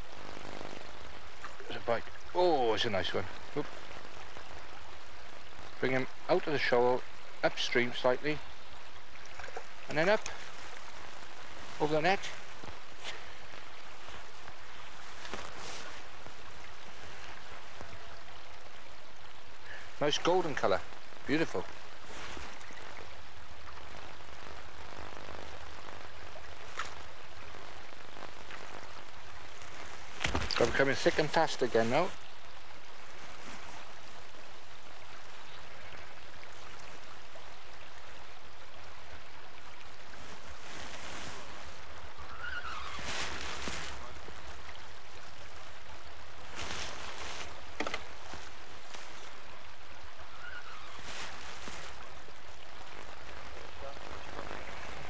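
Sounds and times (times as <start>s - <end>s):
flowing river water: 0.0s - 55.0s
faint clicks: 9.2s - 10.9s.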